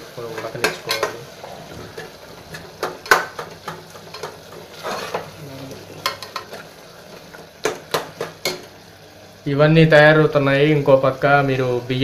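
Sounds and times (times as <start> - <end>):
food hissing in a pot: 1.2 - 2.7, 4.6 - 7.4
metal spatula scraping a pot: 4.0 - 5.4.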